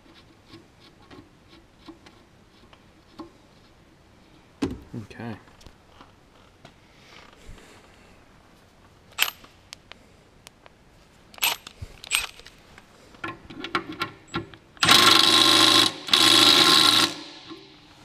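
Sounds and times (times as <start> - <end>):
power tool motor running: 14.8 - 17.4.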